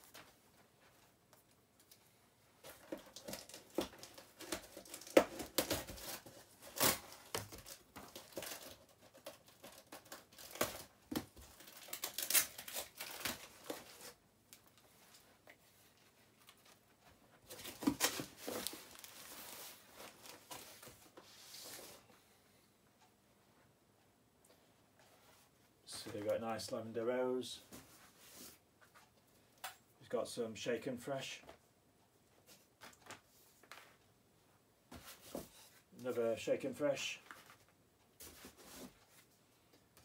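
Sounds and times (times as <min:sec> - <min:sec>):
tape and packaging tearing: 0:03.2 - 0:10.9, 0:11.6 - 0:14.2.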